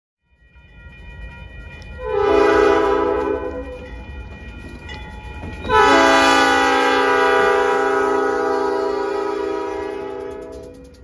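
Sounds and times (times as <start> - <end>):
locomotive air horn blasts: 2.0 - 3.8, 5.7 - 11.0.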